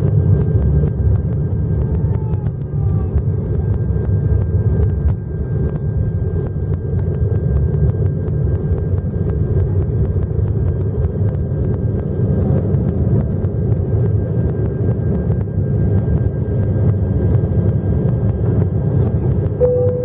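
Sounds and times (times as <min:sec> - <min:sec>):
jet engine low rumble: 0:00.0 - 0:20.0
thin steady whine: 0:00.0 - 0:20.0.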